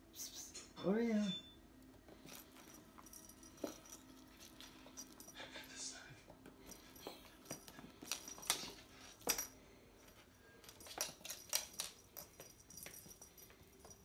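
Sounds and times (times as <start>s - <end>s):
toy ball rattling on wooden floor: 2.2s - 5.3s, 6.7s - 9.5s, 10.6s - 14.0s.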